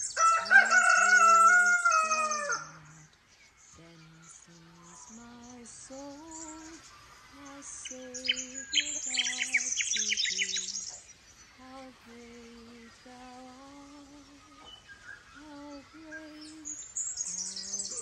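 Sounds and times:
rapid high bird chirping: 0:00.0 - 0:03.3, 0:05.1 - 0:11.6, 0:14.4 - 0:18.0
slow melody of held notes: 0:03.8 - 0:11.0, 0:11.6 - 0:14.8, 0:15.4 - 0:18.0.

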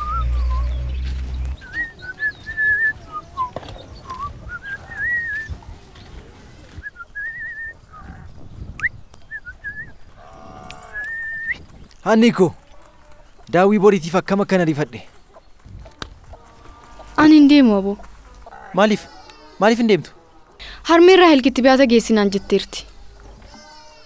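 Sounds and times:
farm animal call: 0:00.0 - 0:08.4, 0:09.5 - 0:24.0
birds whistling calls: 0:00.0 - 0:11.9.

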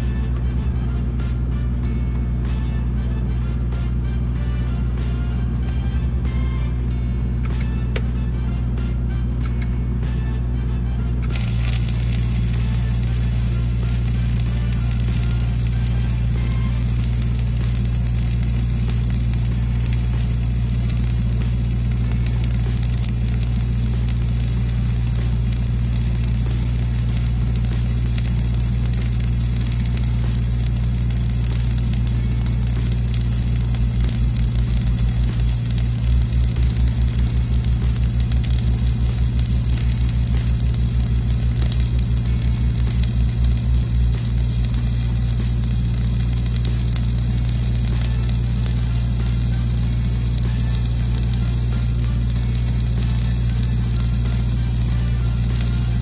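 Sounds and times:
low hum: 0:00.0 - 0:56.0
low pulsing throb: 0:11.0 - 0:56.0
welding arc crackling: 0:11.2 - 0:56.0.

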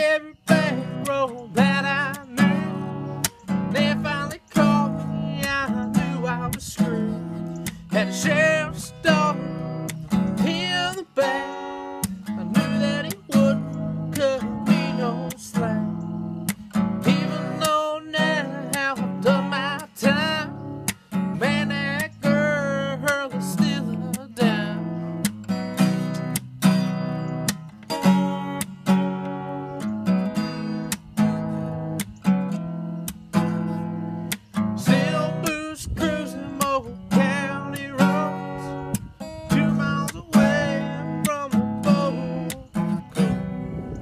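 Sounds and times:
man singing: 0:00.0 - 0:16.1, 0:17.0 - 0:20.6, 0:21.3 - 0:25.0, 0:34.8 - 0:44.0
acoustic guitar strumming: 0:00.0 - 0:44.0.

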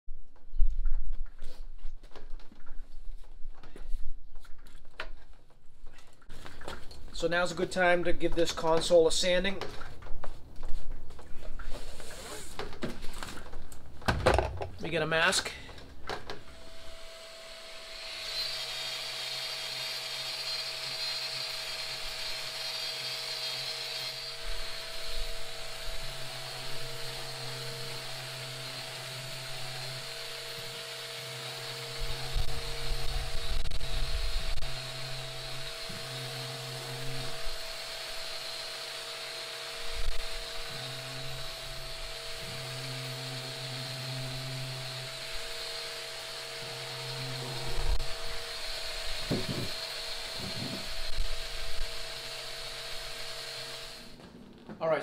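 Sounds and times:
orbital sander whining: 0:16.4 - 0:54.2.

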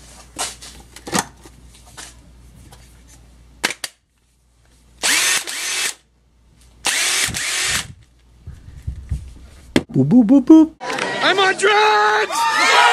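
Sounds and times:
driver motor whine: 0:05.0 - 0:06.0, 0:06.8 - 0:08.0.

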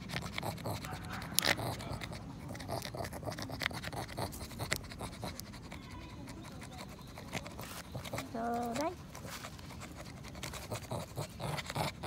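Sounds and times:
dog gnawing wooden stick: 0:00.0 - 0:12.0.

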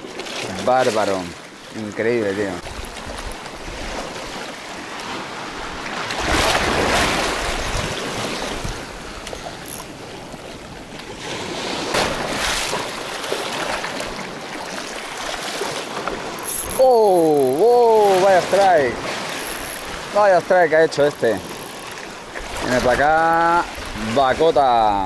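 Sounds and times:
sea waves washing on rocks: 0:00.0 - 0:25.0
wind on microphone: 0:05.7 - 0:09.6.

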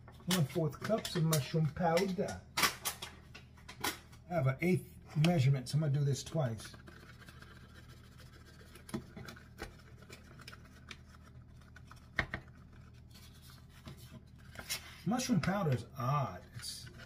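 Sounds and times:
rustling and scratching: 0:05.8 - 0:17.0.

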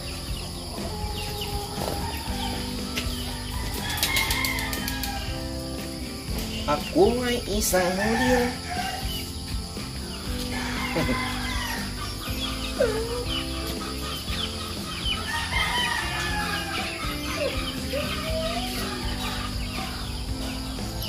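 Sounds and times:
chickens clucking: 0:00.0 - 0:21.0
rooster crowing: 0:00.7 - 0:05.5, 0:07.9 - 0:09.2, 0:10.5 - 0:14.5, 0:15.1 - 0:20.2.

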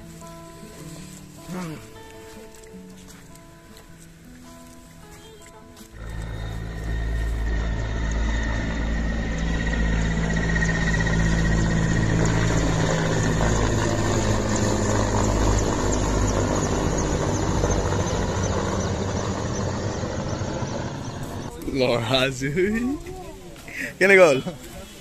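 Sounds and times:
helicopter rotor and engine drone: 0:05.9 - 0:21.7
high turbine whine: 0:05.9 - 0:22.2.

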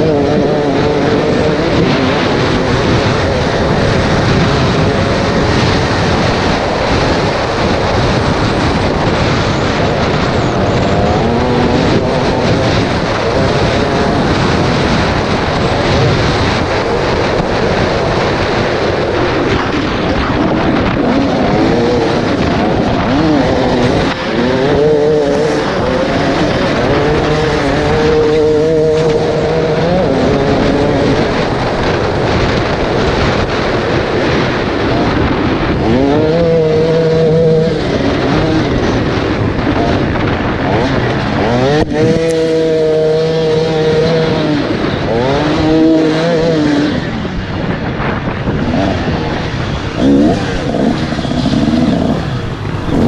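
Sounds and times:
dense rushing noise: 0:00.0 - 0:53.0
two-stroke motorcycle engine revving: 0:00.0 - 0:53.0.

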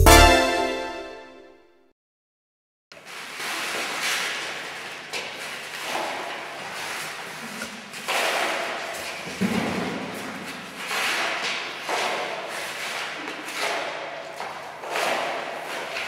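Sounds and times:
paper and plastic litter scraping: 0:03.0 - 0:08.4
push brooms sweeping a hard floor: 0:03.0 - 0:16.0.

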